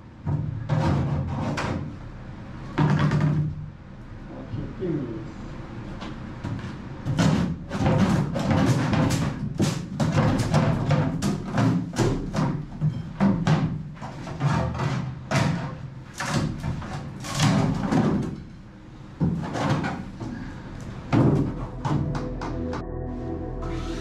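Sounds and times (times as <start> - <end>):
background music: 21.1 - 24.0.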